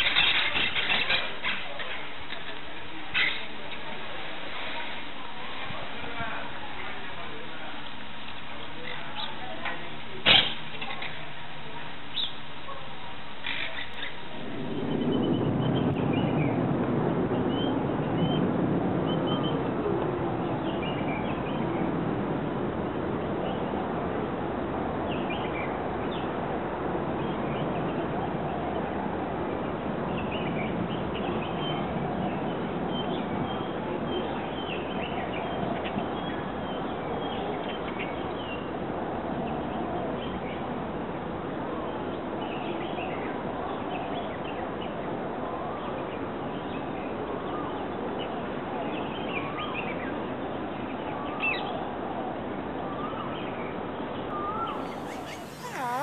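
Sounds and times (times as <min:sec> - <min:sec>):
steady background hiss: 0:54.3 - 0:56.0
parakeets calling: 0:54.4 - 0:56.0.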